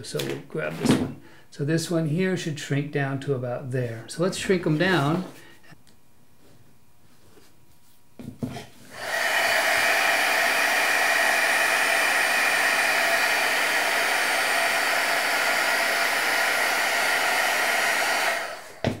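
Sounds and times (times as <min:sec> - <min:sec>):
heat gun blowing: 0:08.9 - 0:19.0.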